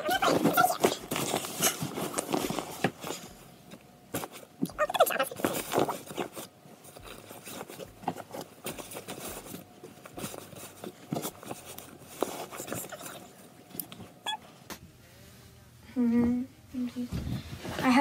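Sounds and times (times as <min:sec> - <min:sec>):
clothes and backpack rustling: 0:00.0 - 0:03.4, 0:04.1 - 0:14.3.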